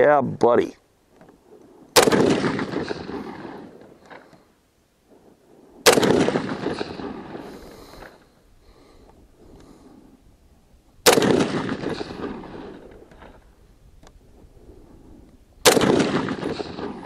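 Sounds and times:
rifle shots with echo: 0:01.9 - 0:04.4, 0:05.7 - 0:08.2, 0:11.0 - 0:13.4, 0:15.6 - 0:17.0.

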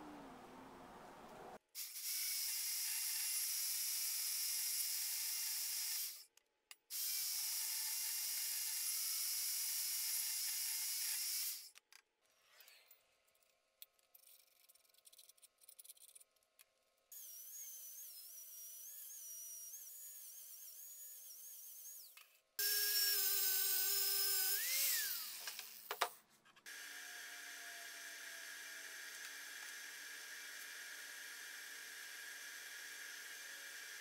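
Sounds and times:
band saw cutting steel: 0:17.2 - 0:25.9.

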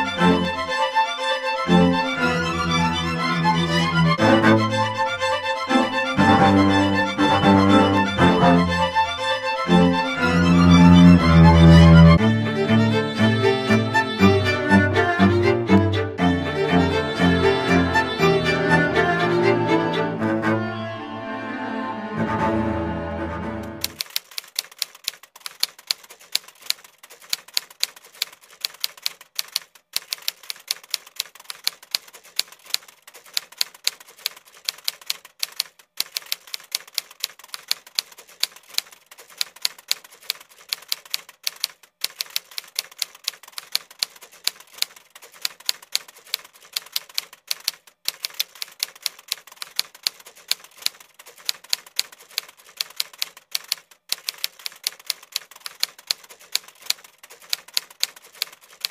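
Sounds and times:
rapid keyboard typing: 0:23.8 - 0:58.9.

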